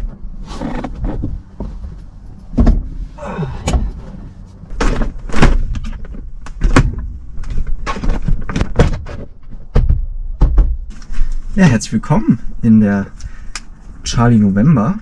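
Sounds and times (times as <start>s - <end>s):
knocks and thumps: 0.8s - 3.0s, 4.7s - 11.0s.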